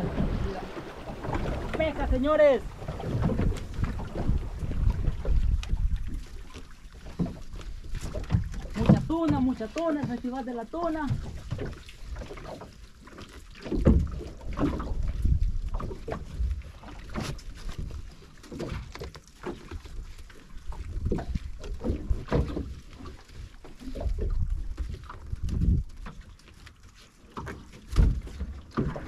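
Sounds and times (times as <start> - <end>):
wind and water noise: 0.0 - 29.0.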